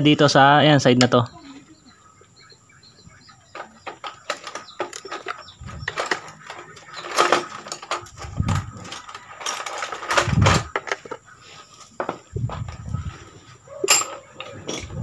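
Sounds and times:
plastic clicks and scrapes: 3.5s - 11.3s.

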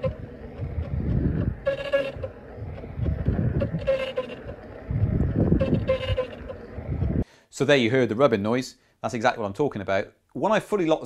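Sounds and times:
wheel rolling rumble: 0.0s - 7.2s.

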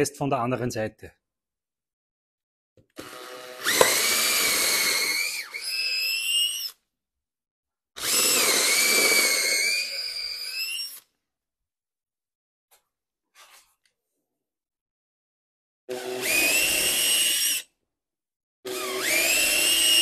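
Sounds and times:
cordless drill boring into wood: 3.0s - 6.8s, 8.0s - 11.1s, 15.9s - 17.7s, 18.7s - 20.0s.

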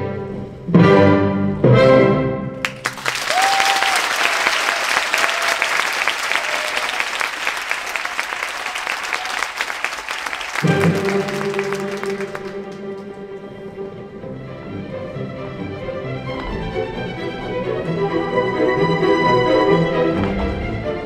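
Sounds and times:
orchestral music: 0.0s - 3.0s, 10.5s - 21.0s
audience applauding: 2.6s - 13.2s.

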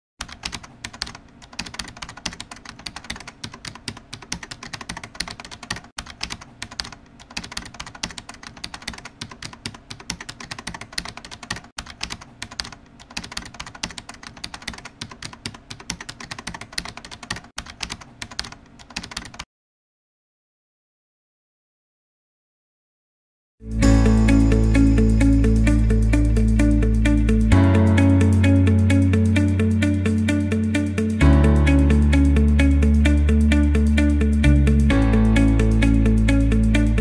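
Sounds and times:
rapid keyboard typing: 0.2s - 19.5s.

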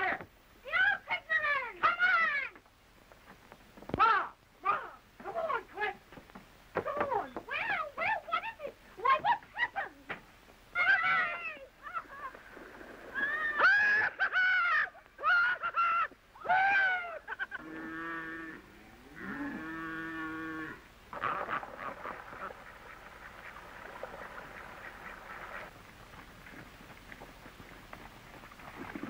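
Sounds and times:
low lowing calls: 10.7s - 29.0s
high animal cries: 13.1s - 22.6s.

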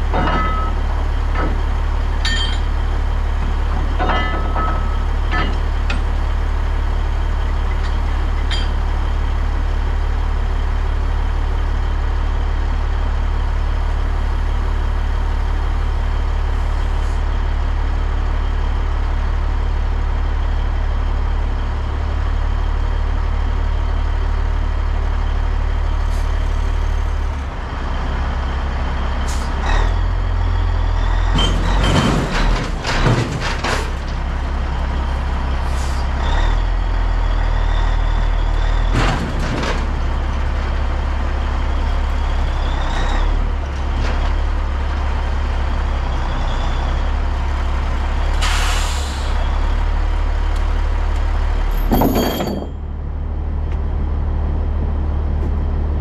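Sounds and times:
air brake hiss: 48.4s - 49.4s.

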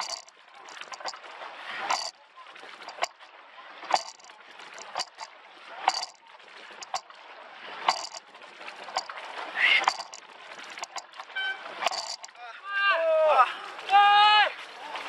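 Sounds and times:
oars knocking in oarlocks: 0.0s - 1.2s, 1.9s - 2.1s, 2.8s - 3.2s, 3.9s - 5.3s, 5.9s - 6.2s, 6.8s - 7.0s, 7.9s - 8.2s, 8.9s - 9.1s, 9.8s - 12.3s
water rushing: 0.0s - 12.4s.

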